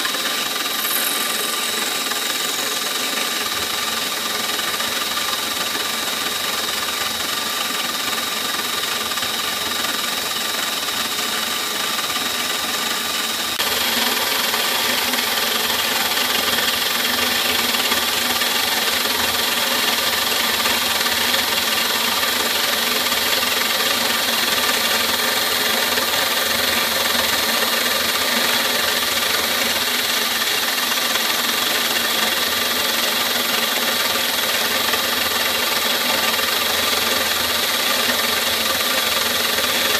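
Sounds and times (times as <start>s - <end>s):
hiss of cutting plastic: 0.0s - 5.0s
milling machine whine: 0.0s - 39.9s.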